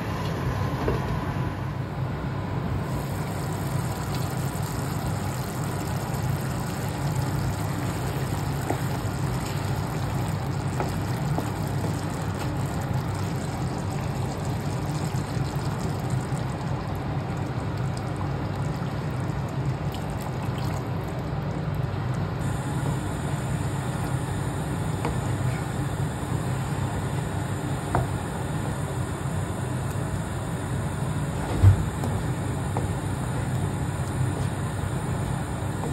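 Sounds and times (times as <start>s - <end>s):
steady low hum: 0.0s - 35.9s
curry simmering and bubbling: 3.0s - 21.4s.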